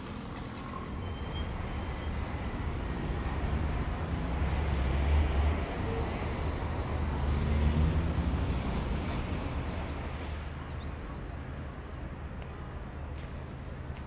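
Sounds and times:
passing vehicles rumble: 0.0s - 14.0s.

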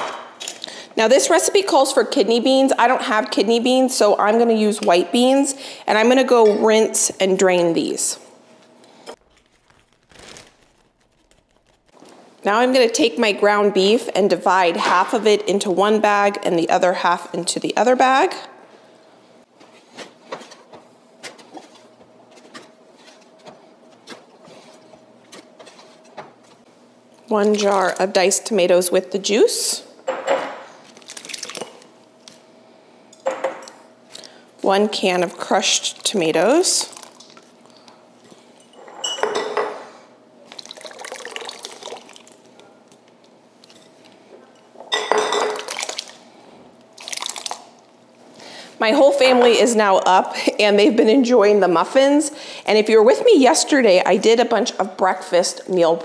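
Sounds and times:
plastic bag rustling: 9.2s - 12.4s
glass jar clinks: 38.7s - 39.7s.

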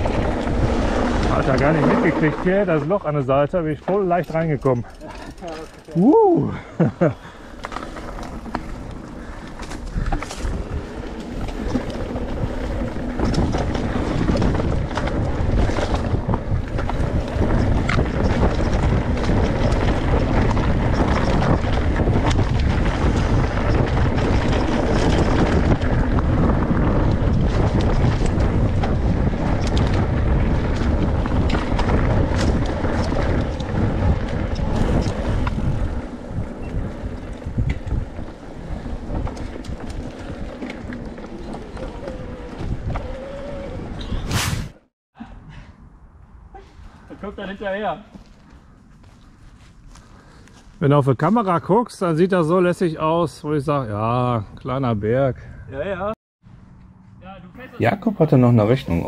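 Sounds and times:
wind buffeting microphone: 0.0s - 3.9s, 4.6s - 44.8s
tyres rumbling on dirt trail: 0.0s - 44.8s, 46.9s - 59.0s
bike knocks and rattles: 7.6s - 44.2s.

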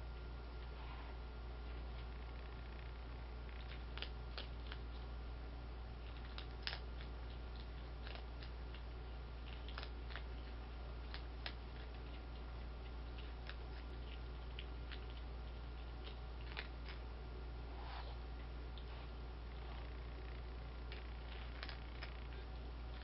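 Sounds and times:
steady low hum: 0.0s - 23.0s
animal crunching dry kibble: 1.6s - 23.0s.

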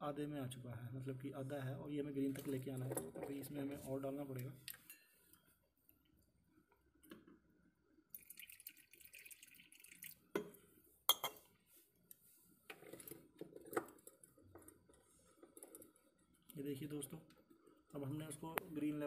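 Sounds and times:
water trickling: 8.1s - 10.4s.

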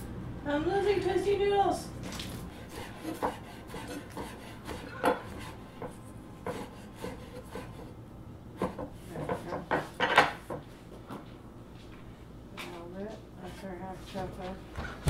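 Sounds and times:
knife on wooden cutting board: 2.1s - 7.9s.

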